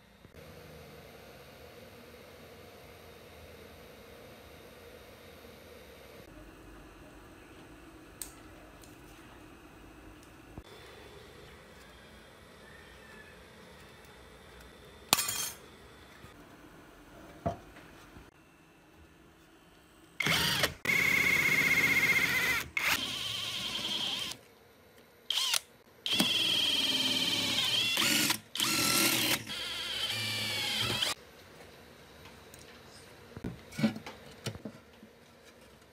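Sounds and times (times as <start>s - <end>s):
electric drill boring sheet metal: 20.2s - 24.4s, 25.3s - 31.2s.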